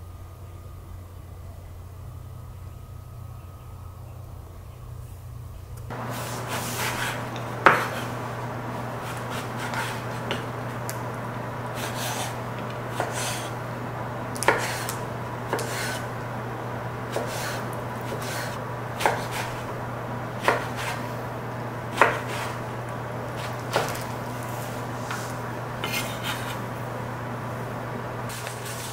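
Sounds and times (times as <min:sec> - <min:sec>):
steady low hum: 0:00.0 - 0:28.9
knife slicing and scraping: 0:06.0 - 0:10.7, 0:11.8 - 0:13.6, 0:14.4 - 0:16.1, 0:17.1 - 0:19.7, 0:20.4 - 0:21.1, 0:21.9 - 0:22.6, 0:23.4 - 0:26.6, 0:28.3 - 0:28.9.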